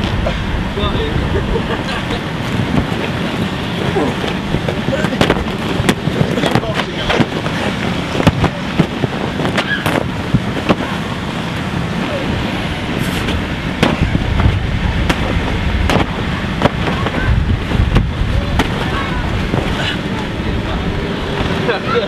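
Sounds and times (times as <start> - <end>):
steady rushing noise: 0.0 - 22.0
wind rumble on microphone: 0.0 - 22.0
slaps and thumps on vinyl: 4.2 - 10.9, 13.8 - 19.7.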